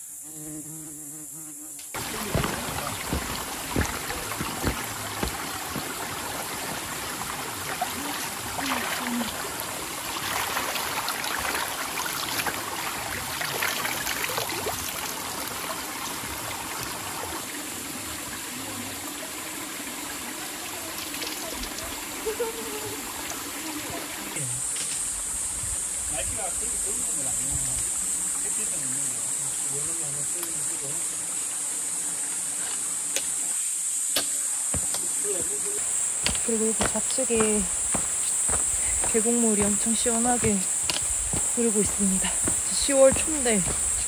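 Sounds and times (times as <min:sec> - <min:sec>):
stream trickling over rocks: 0:02.0 - 0:24.4, 0:34.7 - 0:44.0.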